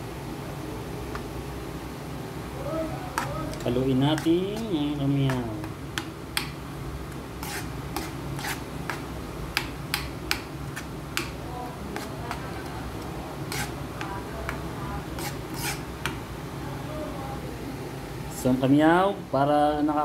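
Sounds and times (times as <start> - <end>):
metal spoon scraping frying pan: 7.4 - 9.0, 13.5 - 13.8, 15.0 - 15.9.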